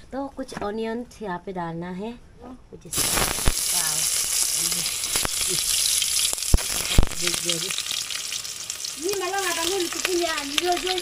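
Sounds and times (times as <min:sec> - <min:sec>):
onions sizzling in oil: 0:02.9 - 0:11.0.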